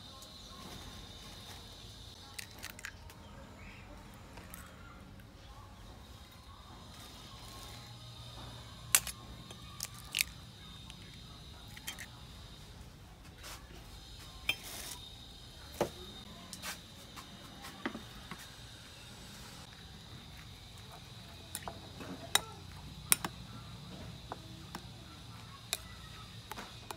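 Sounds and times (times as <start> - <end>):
eggs cracking into bowl: 9.8 - 11.0.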